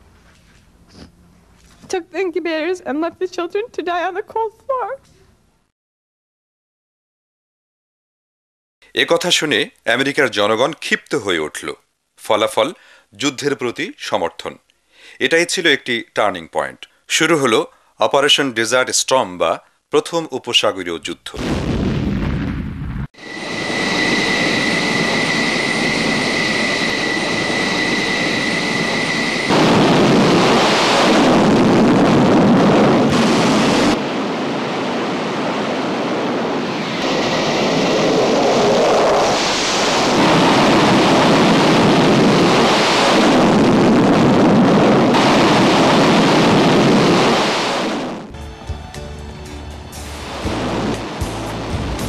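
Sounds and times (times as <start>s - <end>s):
turbine whine: 22.8s - 52.0s
loud jet engine noise: 23.1s - 48.4s, 49.4s - 52.0s
background music: 48.3s - 52.0s.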